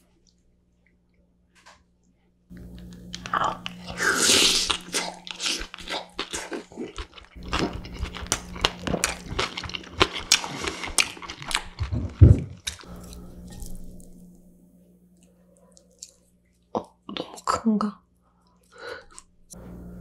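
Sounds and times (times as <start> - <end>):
chewing with wet clicks and crunches: 4.7 - 11.9, 15.7 - 16.7.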